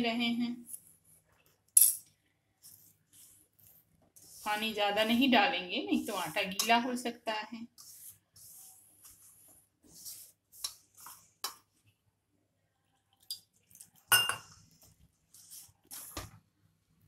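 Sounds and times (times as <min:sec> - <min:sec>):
hand scraping in steel bowl: 0:02.6 - 0:06.5, 0:07.7 - 0:11.4
metallic clink of bowl: 0:14.1 - 0:14.5.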